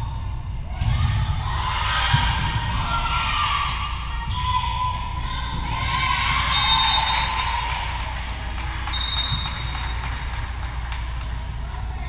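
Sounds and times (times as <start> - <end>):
crowd calling and cheering: 0.8 - 12.0
taps and claps: 7.2 - 11.5.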